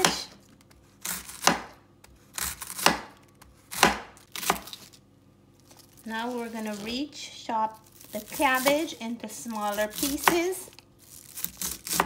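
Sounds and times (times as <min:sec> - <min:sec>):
knife slicing cabbage: 0:00.0 - 0:05.0, 0:08.0 - 0:12.0.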